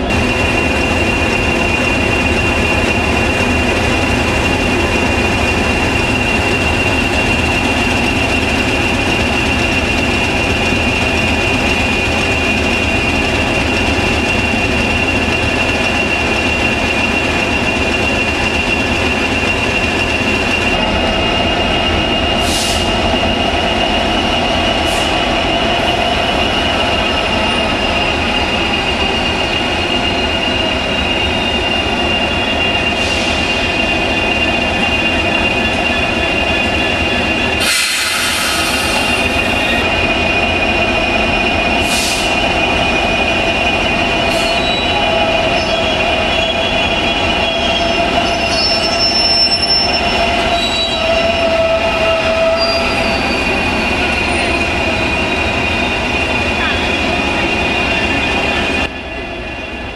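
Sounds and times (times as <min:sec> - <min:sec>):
diesel locomotive engine drone: 0:00.0 - 0:59.9
brief air hisses: 0:22.4 - 0:23.0, 0:37.6 - 0:39.2.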